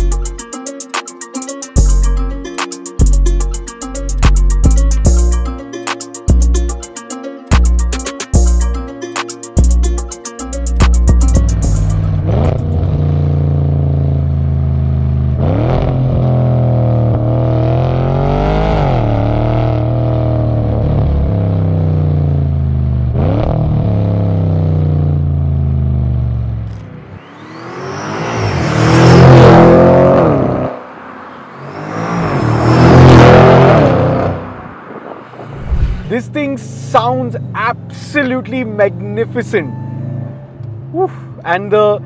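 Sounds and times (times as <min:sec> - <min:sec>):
car exhaust revving: 0:11.0 - 0:30.8.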